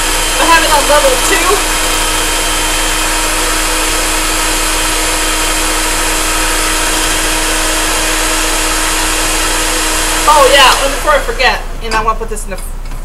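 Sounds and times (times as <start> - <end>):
electric hand mixer whisking: 0.0 - 12.3.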